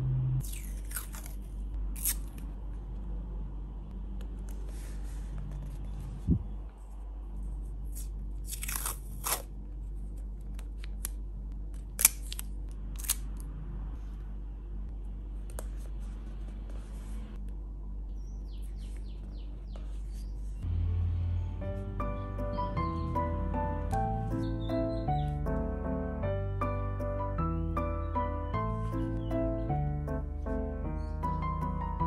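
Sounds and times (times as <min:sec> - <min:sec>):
low hum: 0:00.0 - 0:32.0
tape tearing and crinkling: 0:00.4 - 0:02.5, 0:07.9 - 0:09.5, 0:11.9 - 0:13.2.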